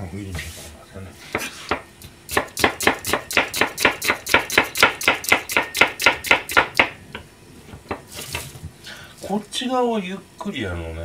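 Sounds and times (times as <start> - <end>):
knife chopping onion on board: 1.3 - 7.2, 7.8 - 8.5.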